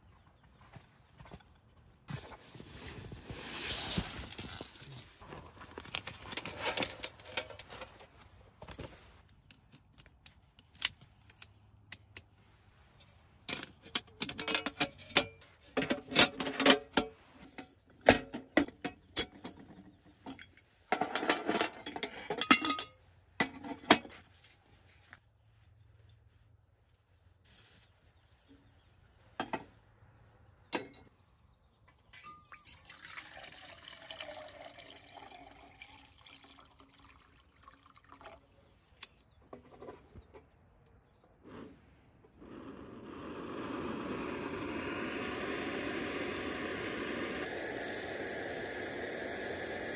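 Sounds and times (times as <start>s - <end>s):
metal cookware clinking: 20.3s - 23.0s
water pouring into metal pot: 32.4s - 38.4s, 46.5s - 49.9s.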